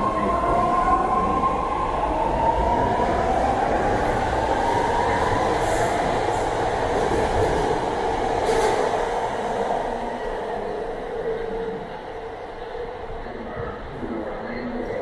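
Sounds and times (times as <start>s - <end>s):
train wheels rumbling on track: 2.7s - 10.7s.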